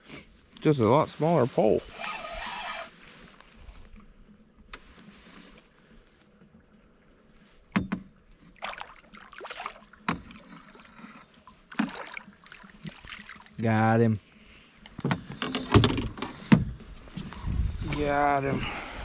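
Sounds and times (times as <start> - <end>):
water splashing: 8.3 - 13.8.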